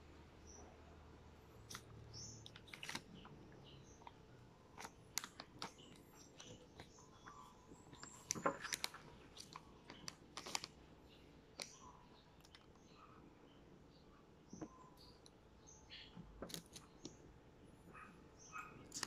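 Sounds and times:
plastic snack packet crinkling: 1.7s - 3.4s, 7.9s - 10.8s.

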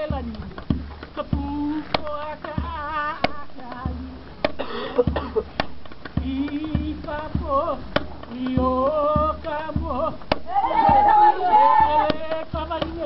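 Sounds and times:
hand drum thumps: 0.0s - 13.0s
person chanting: 8.4s - 13.0s.

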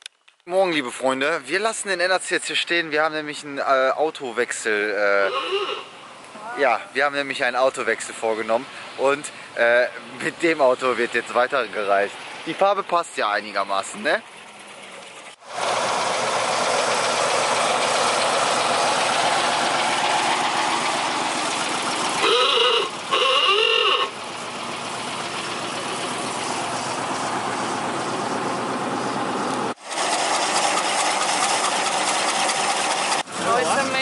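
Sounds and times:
old-style car horn honks: 5.1s - 6.0s, 22.2s - 24.2s.

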